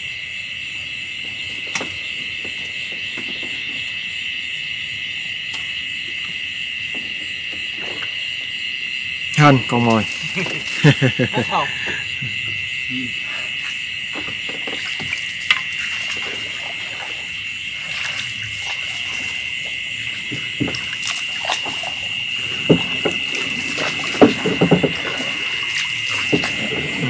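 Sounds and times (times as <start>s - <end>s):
insects chirping at night: 0.0s - 27.0s
light knocks and bumps: 22.6s - 25.4s.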